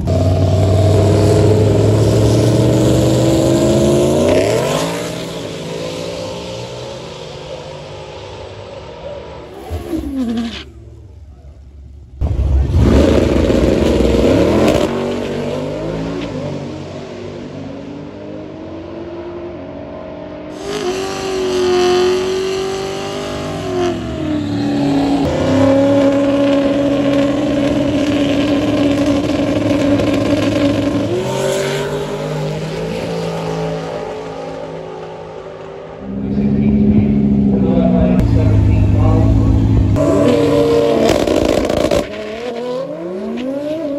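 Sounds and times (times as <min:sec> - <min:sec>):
drag car revving at start line: 0:00.0 - 0:11.0, 0:12.2 - 0:43.9
drag car accelerating away: 0:00.0 - 0:43.9.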